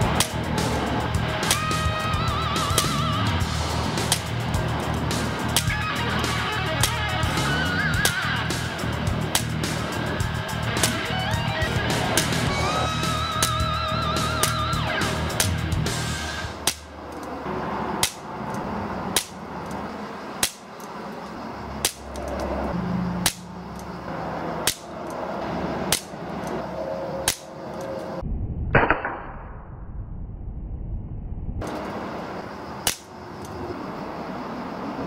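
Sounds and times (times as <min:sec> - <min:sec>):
air pistol shots: 0:00.2 - 0:00.8, 0:04.0 - 0:04.3, 0:16.5 - 0:16.9, 0:18.0 - 0:18.3, 0:19.2 - 0:19.4, 0:20.4 - 0:20.7, 0:21.8 - 0:22.1, 0:24.6 - 0:24.9, 0:25.9 - 0:26.2, 0:27.2 - 0:27.6.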